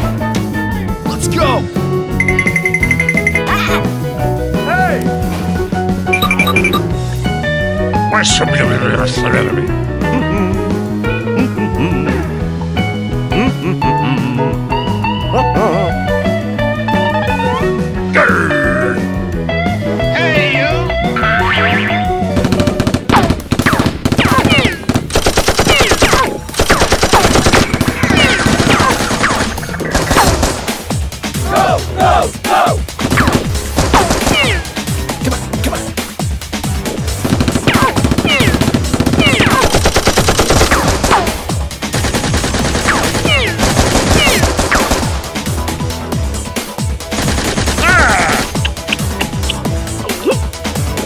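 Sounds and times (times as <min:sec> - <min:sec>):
action music: 0:00.8 - 0:09.9, 0:10.8 - 0:51.0
rapid automatic gunfire: 0:22.4 - 0:30.9, 0:33.0 - 0:34.5, 0:37.0 - 0:45.5, 0:47.1 - 0:48.2
machine-gun bursts: 0:22.5 - 0:30.7, 0:37.2 - 0:41.3, 0:41.9 - 0:45.3.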